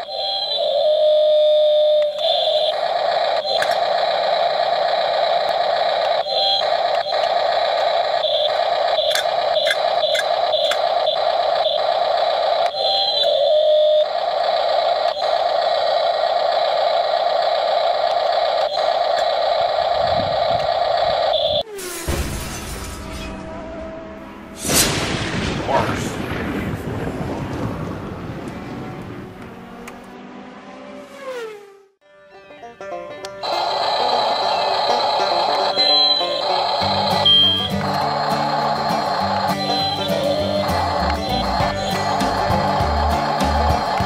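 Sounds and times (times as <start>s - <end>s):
electric motors whining: 0.0s - 21.7s, 33.4s - 44.0s.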